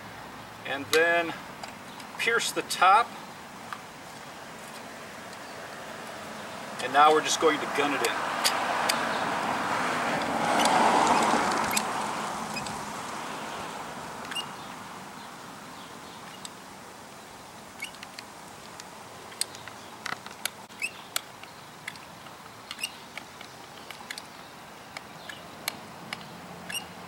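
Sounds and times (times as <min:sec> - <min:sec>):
faint steady hiss: 0:00.0 - 0:08.2, 0:11.0 - 0:27.0.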